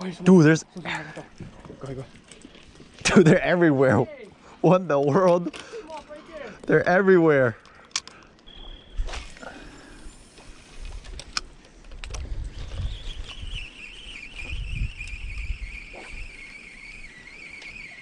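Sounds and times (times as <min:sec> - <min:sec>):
fishing reel gears whining: 0:08.5 - 0:11.4, 0:13.0 - 0:18.0
wind rumbling on microphone: 0:10.0 - 0:17.3.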